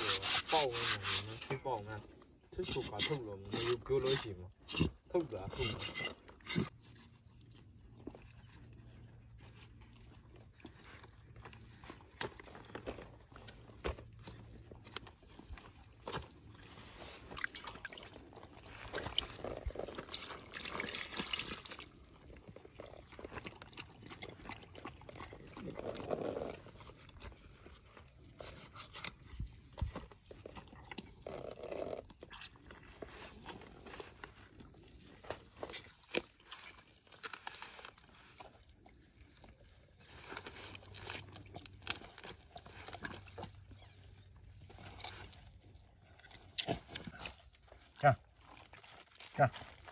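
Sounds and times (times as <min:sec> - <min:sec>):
roasted meat crackling and tearing: 0:35.6 - 0:38.6, 0:40.1 - 0:43.8.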